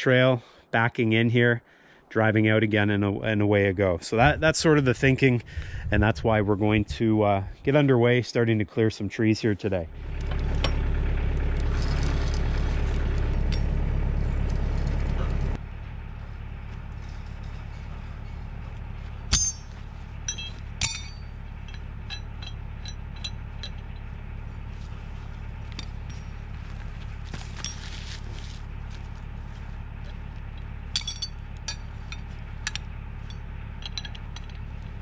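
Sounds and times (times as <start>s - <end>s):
tractor diesel engine idling: 9.4s - 35.0s
metallic clinks of cable hook: 20.3s - 24.0s, 30.9s - 34.7s.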